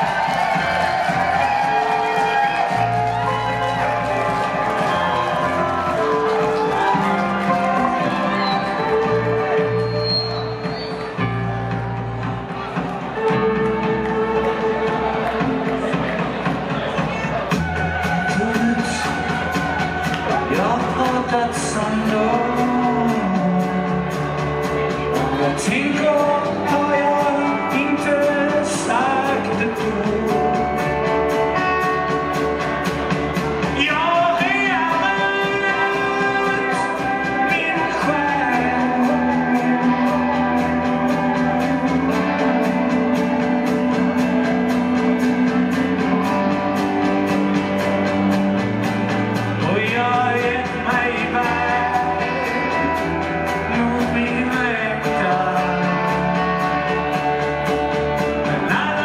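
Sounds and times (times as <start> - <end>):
live rock band playing: 0.0 - 59.0
man singing into microphone: 18.2 - 19.5, 20.3 - 24.3, 25.1 - 31.4, 33.7 - 43.3, 49.6 - 57.2, 58.4 - 59.0.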